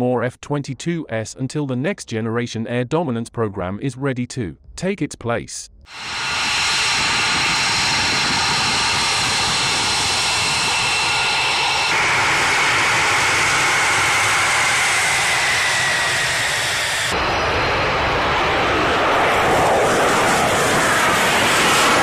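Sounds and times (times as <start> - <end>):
jet engine whine: 5.9 - 22.0
jet taking off roar: 5.9 - 22.0.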